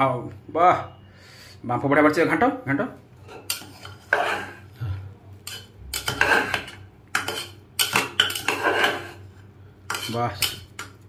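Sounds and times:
metal spoon scraping a pot: 3.2s - 4.7s, 5.4s - 11.0s.

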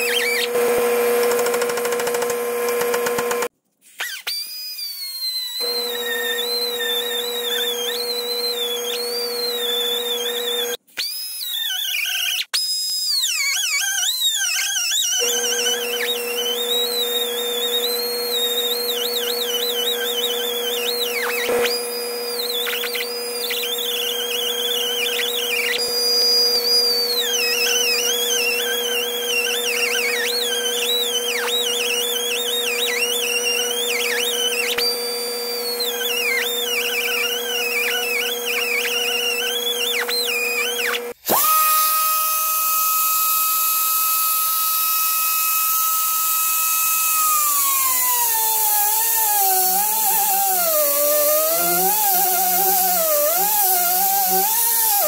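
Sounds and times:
tool spinning freely whine: 0.0s - 3.5s, 4.5s - 10.8s, 13.9s - 55.0s
cutoff wheel grinding steel: 46.1s - 55.0s.

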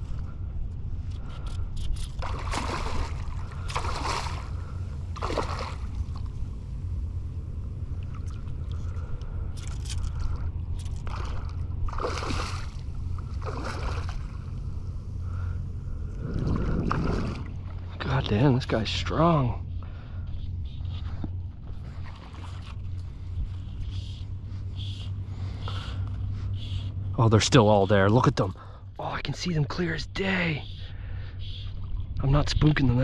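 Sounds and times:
steady low rumble: 0.0s - 33.0s
water sloshing and splashing: 1.9s - 6.4s, 8.0s - 14.6s, 16.2s - 18.2s, 21.7s - 23.3s.

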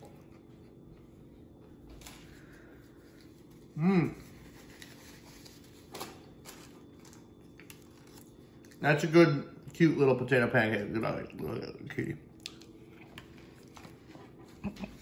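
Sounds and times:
man humming mmm: 3.7s - 4.4s.

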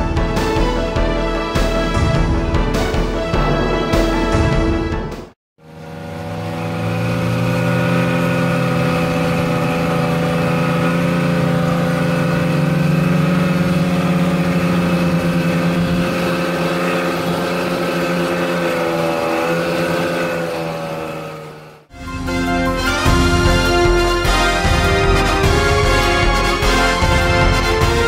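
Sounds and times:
snowmobile engine running: 5.6s - 28.0s.

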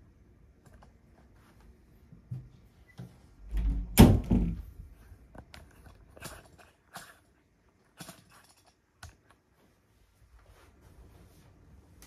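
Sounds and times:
objects knocking and thumping: 3.5s - 4.8s.

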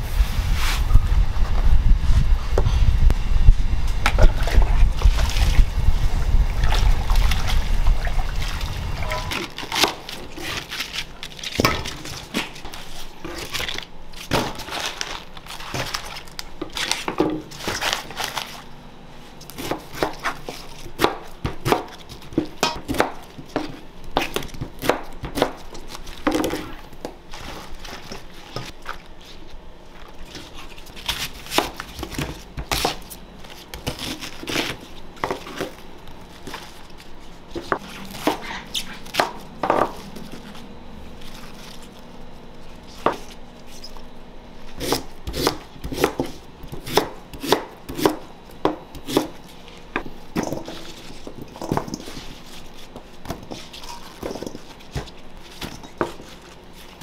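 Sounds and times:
kitchen knocks and clatters: 11.6s - 12.6s.

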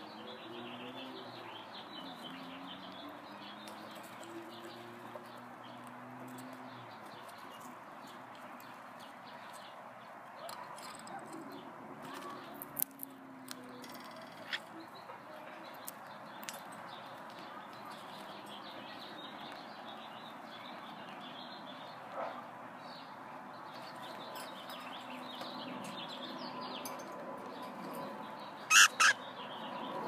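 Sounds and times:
cockatiels chirping: 28.7s - 29.2s.

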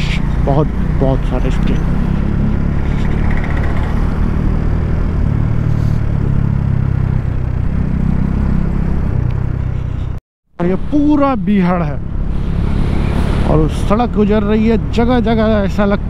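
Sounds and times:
motorcycle engine running: 0.0s - 10.2s
road noise: 0.0s - 16.0s.

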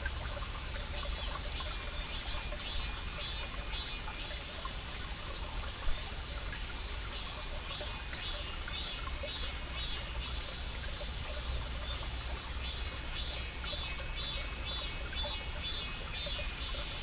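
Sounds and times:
stream trickling over rocks: 0.0s - 17.0s
cicada pulsing song: 1.7s - 4.5s, 7.7s - 10.5s, 12.6s - 17.0s.

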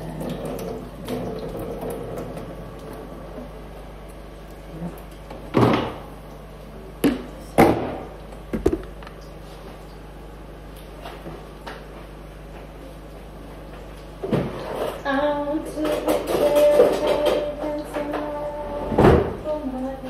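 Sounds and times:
kitchen items knocking and clattering: 7.1s - 9.0s.

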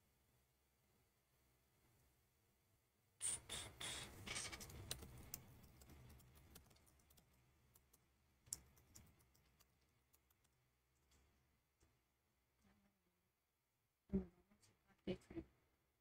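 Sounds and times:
typing on computer keyboard: 4.3s - 10.6s.

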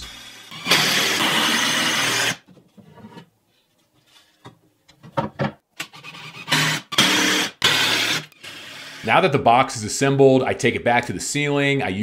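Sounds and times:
cordless drill running: 0.0s - 2.4s, 6.1s - 9.1s.

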